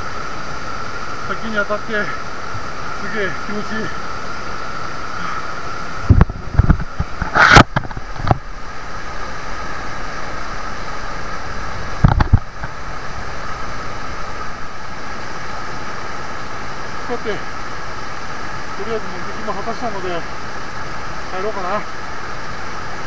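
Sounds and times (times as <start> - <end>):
small waterfall rushing: 0.0 - 23.0.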